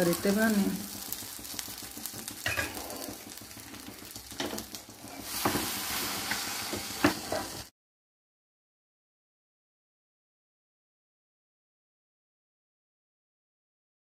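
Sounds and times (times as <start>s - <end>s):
butter sizzling on bread: 0.0s - 7.7s.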